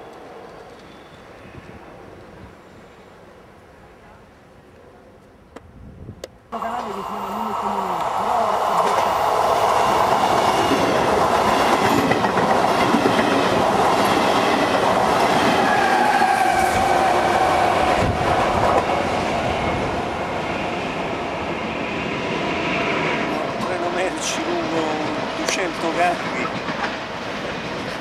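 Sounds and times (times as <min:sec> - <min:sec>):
drawn-out train squeal: 0:00.0 - 0:01.8, 0:15.5 - 0:18.1
train wheels clattering: 0:08.7 - 0:17.4.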